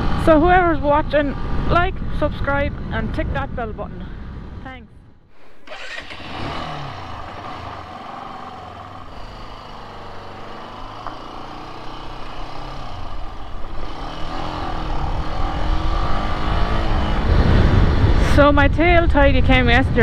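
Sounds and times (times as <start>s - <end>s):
wind rumble on microphone: 0.0s - 5.2s, 12.3s - 20.0s
motorcycle engine accelerating: 5.4s - 19.8s.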